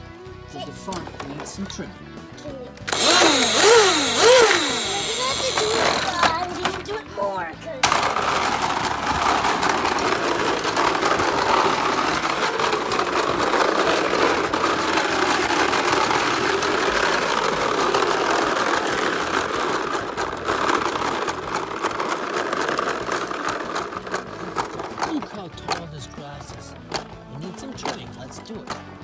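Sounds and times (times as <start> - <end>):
plastic wheels rolling on concrete: 0.0 - 29.0
toy motor buzz with clicks: 2.8 - 6.9, 8.2 - 24.7.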